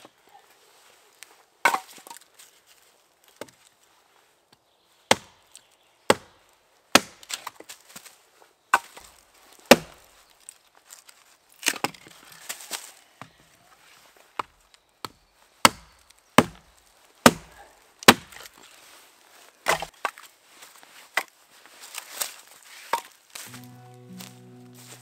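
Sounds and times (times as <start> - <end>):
axe chopping wood: 1.6 - 2.1, 5.1 - 5.5, 6.1 - 7.7, 8.7 - 9.1, 9.7 - 10.0, 14.4 - 18.5, 19.6 - 20.2.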